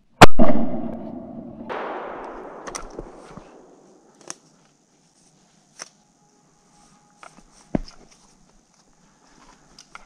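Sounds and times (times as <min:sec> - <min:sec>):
rifle shot echoing through forest: 0:00.2 - 0:04.3.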